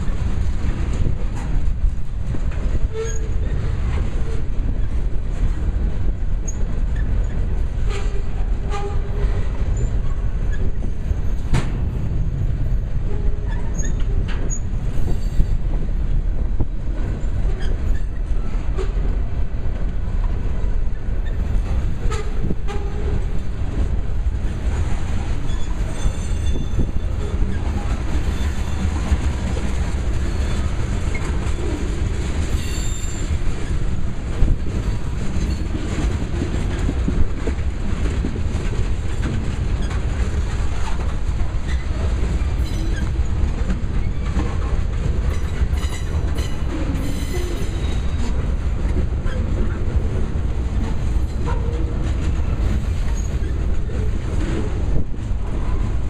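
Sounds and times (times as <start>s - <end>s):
train rumbling past: 0.0s - 56.0s
wheels clacking over rail joints: 0.0s - 56.0s
wheel squeals: 13.5s - 15.5s, 25.5s - 27.6s, 32.5s - 33.8s, 41.6s - 43.1s.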